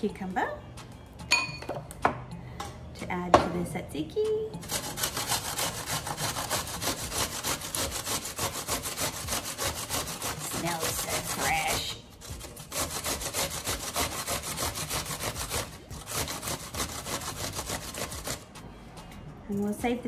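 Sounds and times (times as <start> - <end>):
cucumber rasping on metal grater: 4.6 - 18.6.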